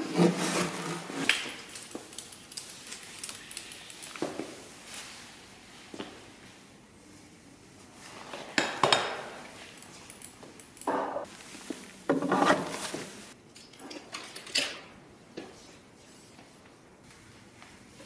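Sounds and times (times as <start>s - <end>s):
folding bike metal clicks and rattles: 13.5s - 14.9s.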